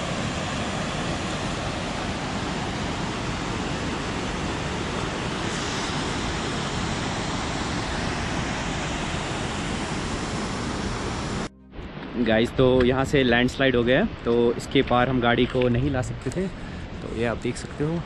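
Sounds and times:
river rushing over rapids: 0:00.0 - 0:11.5.

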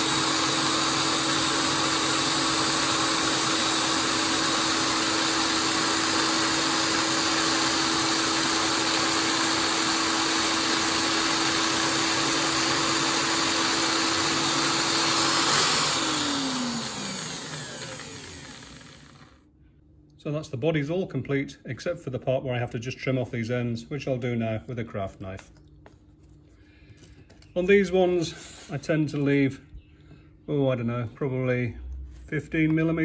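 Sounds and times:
electric drill whining: 0:00.0 - 0:19.4.

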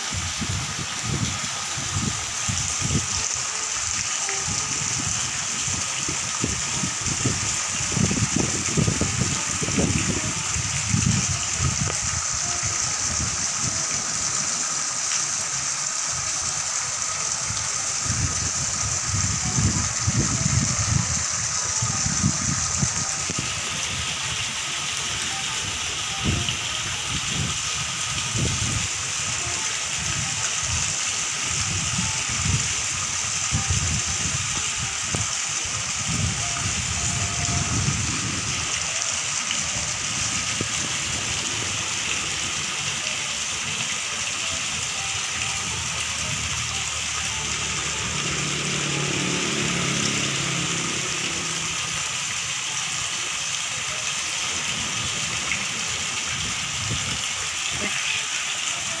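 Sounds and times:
fountain splashing into pool: 0:00.0 - 0:59.0
low gusty rumble: 0:31.6 - 0:39.0.

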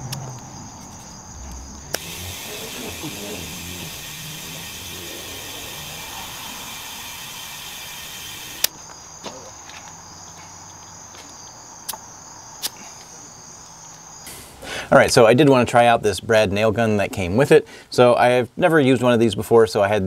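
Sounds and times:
crickets chirping: 0:00.0 - 0:16.6
compressed air hissing: 0:01.8 - 0:08.7, 0:14.3 - 0:14.9.

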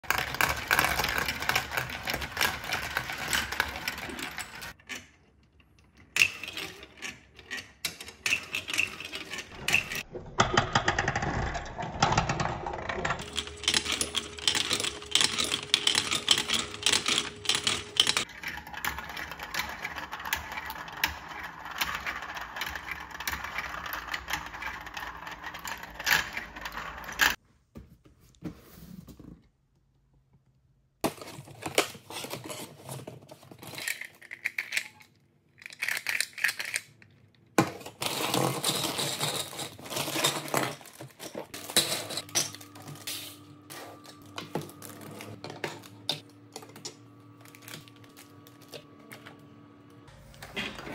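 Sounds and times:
marbles rolling and clicking: 0:00.0 - 0:04.8, 0:06.2 - 0:27.4.

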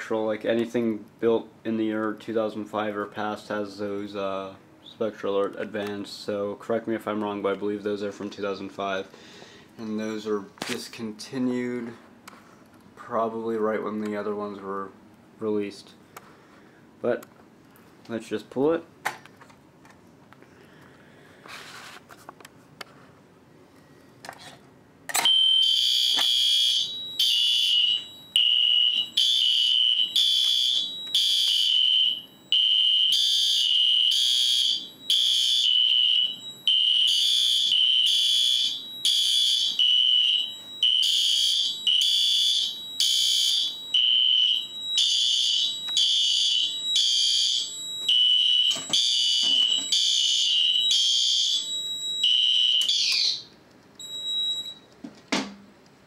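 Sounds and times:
fire alarm pull station click: 0:25.1 - 0:26.5, 0:48.0 - 0:50.2, 0:52.2 - 0:53.4
fire alarm horns pulsing: 0:25.2 - 0:53.4.

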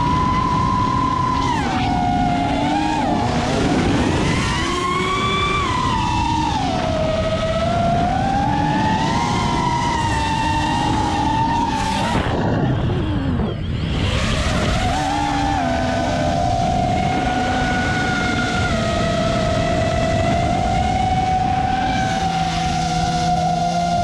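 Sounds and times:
drone motors whining: 0:00.0 - 0:24.0.

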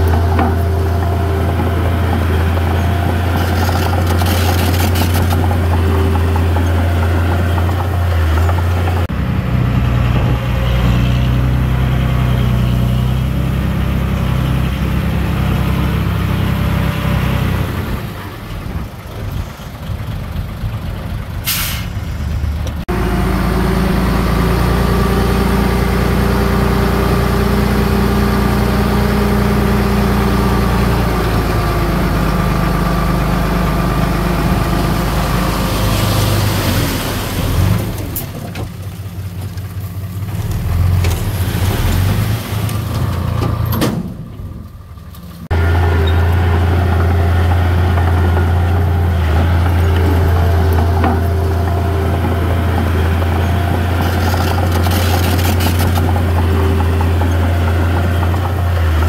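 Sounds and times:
heavy diesel engines running: 0:00.0 - 0:59.0
air brake hiss: 0:21.4 - 0:22.1.

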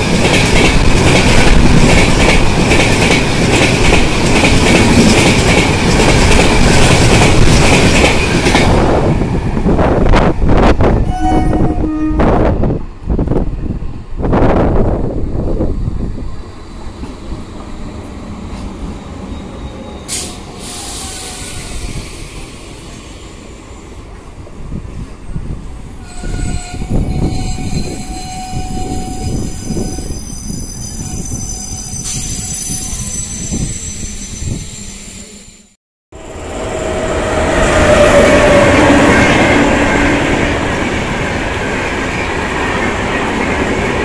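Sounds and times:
train rumbling past: 0:00.0 - 0:44.0
high thin wheel squeal: 0:26.1 - 0:35.7.

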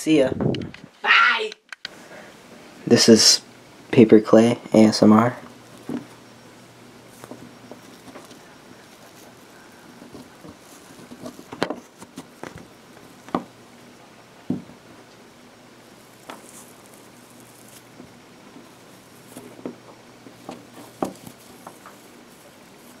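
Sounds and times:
wet paper pulp squishing: 0:15.9 - 0:23.0.

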